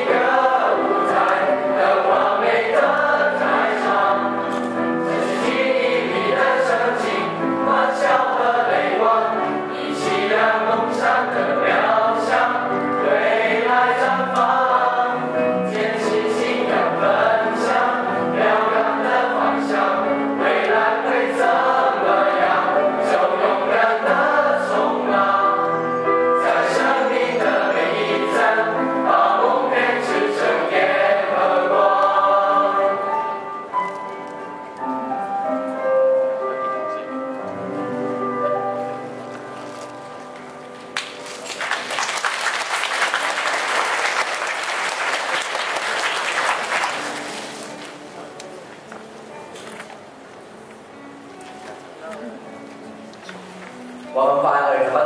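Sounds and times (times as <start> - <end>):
choir singing: 0.0 - 34.0
piano: 0.0 - 55.0.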